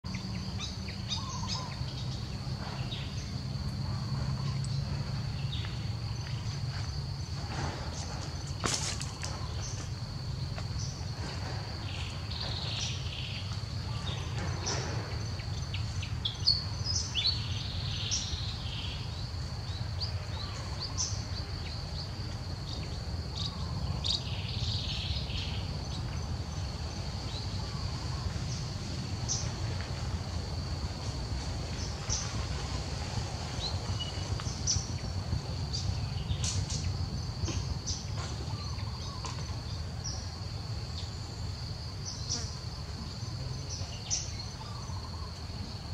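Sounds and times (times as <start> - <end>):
bird chirps: 0.1 - 6.6.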